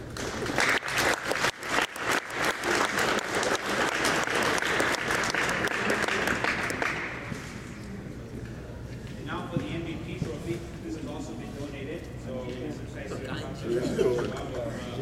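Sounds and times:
people applauding: 0.0s - 7.5s.

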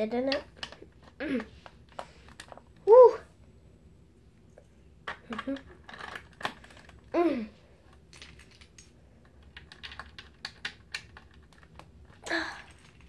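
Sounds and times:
plastic bricks clicking: 0.3s - 2.7s, 5.0s - 7.1s, 8.1s - 13.0s.

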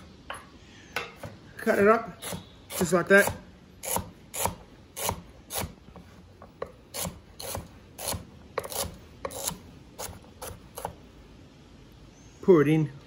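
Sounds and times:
knife chopping on wooden board: 6.5s - 11.0s.

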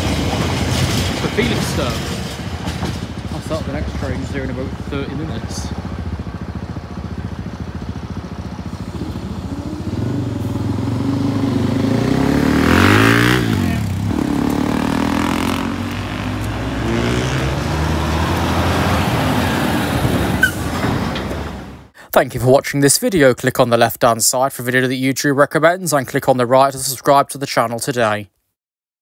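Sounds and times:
diesel lorry passing: 0.0s - 21.9s
road traffic: 0.0s - 22.1s.

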